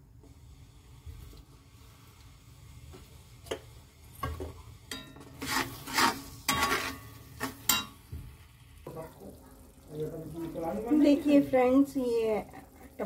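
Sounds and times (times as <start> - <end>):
spatula scraping masala in iron pan: 4.8 - 8.1.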